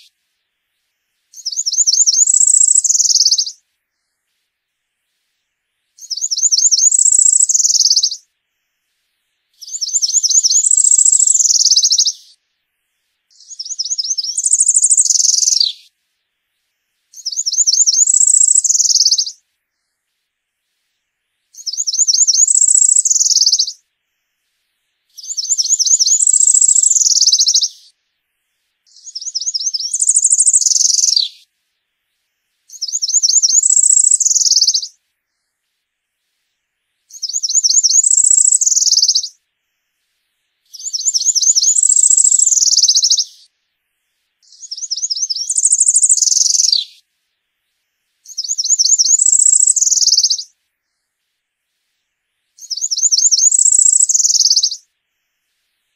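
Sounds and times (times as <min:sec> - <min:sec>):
warbler singing buzzy song: 0:00.8 - 0:04.4, 0:05.2 - 0:08.8, 0:09.5 - 0:12.5, 0:13.3 - 0:16.0, 0:16.6 - 0:20.1, 0:21.4 - 0:24.4, 0:25.1 - 0:28.0, 0:28.9 - 0:31.5, 0:32.2 - 0:35.8, 0:37.0 - 0:40.0, 0:40.6 - 0:43.6, 0:44.4 - 0:47.1, 0:47.7 - 0:51.2, 0:52.5 - 0:55.5.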